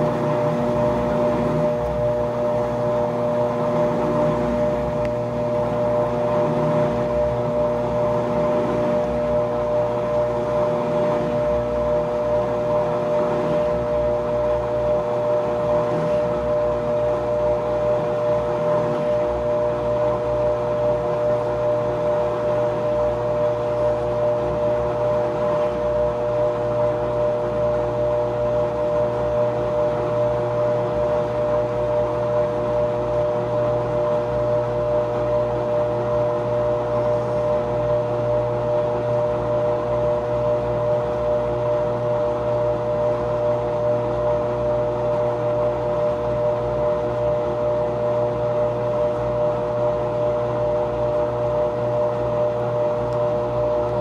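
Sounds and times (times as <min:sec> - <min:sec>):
washing machine motor whine: 0:00.0 - 0:54.0.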